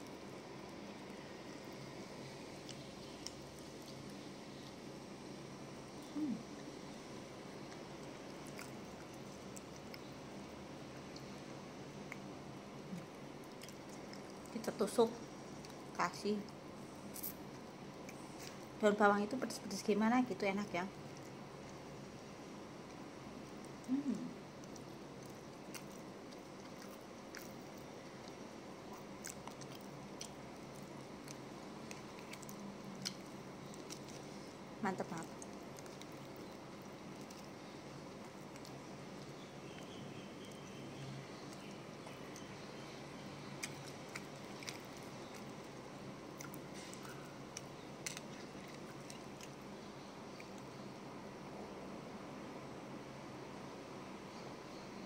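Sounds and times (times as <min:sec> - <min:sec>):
person chewing: 0:07.6 - 0:10.1, 0:12.0 - 0:14.5, 0:23.5 - 0:34.6, 0:35.2 - 0:40.8, 0:43.5 - 0:50.7.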